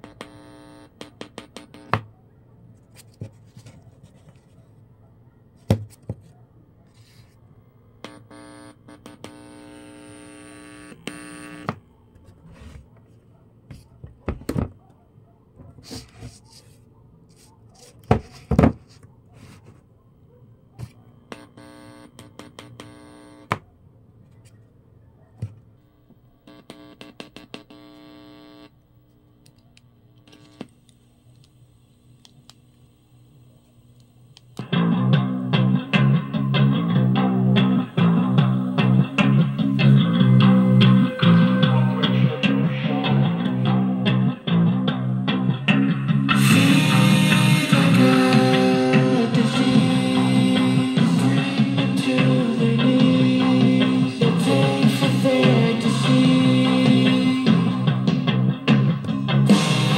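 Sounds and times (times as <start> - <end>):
speaker cabinets rubbing and shuffling: 12.2 - 14.8, 15.6 - 16.8
guitar music through small speakers: 34.6 - 59.9.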